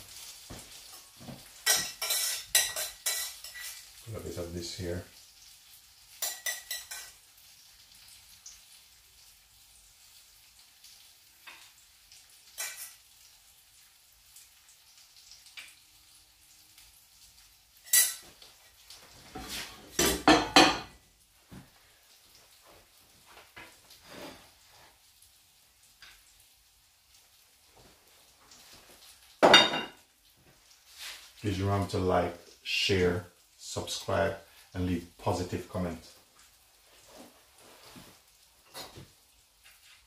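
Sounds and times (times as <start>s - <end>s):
metal pans clattering on hob: 0.8s - 3.9s, 6.2s - 7.2s, 12.5s - 13.0s, 19.3s - 21.0s, 29.4s - 30.0s
metal spoon clinking on saucepan: 1.6s - 3.8s, 6.2s - 7.1s.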